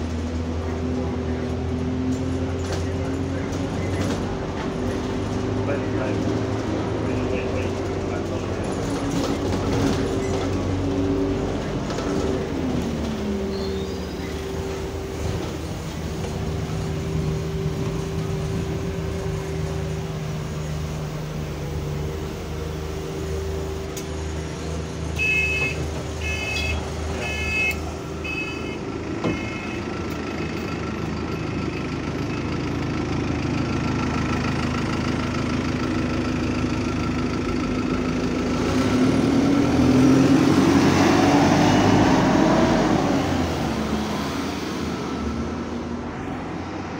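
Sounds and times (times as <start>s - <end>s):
bus engine running: 0.0s - 46.9s
two-tone door warning beeps: 25.2s - 29.8s.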